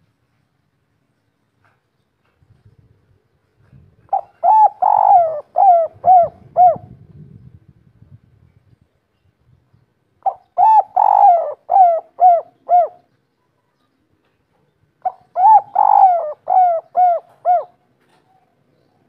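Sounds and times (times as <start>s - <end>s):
dove cooing: 4.1s - 7.0s, 10.2s - 13.1s, 15.0s - 18.4s.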